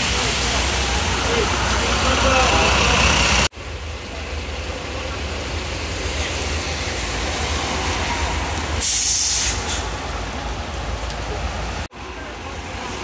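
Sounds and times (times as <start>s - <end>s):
bus engine idling: 0.0s - 13.0s
compressed air hiss: 8.8s - 9.9s.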